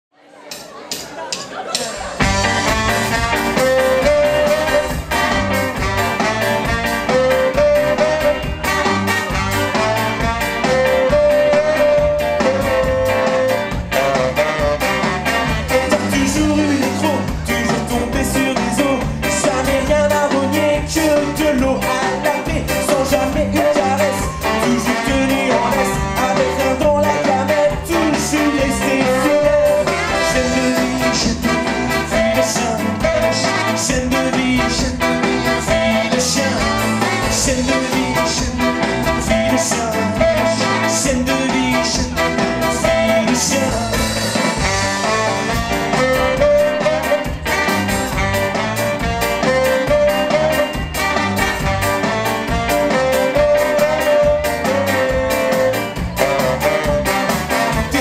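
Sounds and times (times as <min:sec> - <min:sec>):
ska band playing live: 0:00.2 - 0:58.0
person singing: 0:15.4 - 0:47.4, 0:52.5 - 0:58.0.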